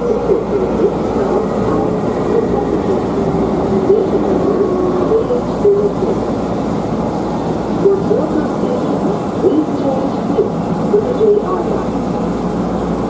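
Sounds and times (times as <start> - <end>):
train wheels rumbling on rail: 0.0 - 13.0.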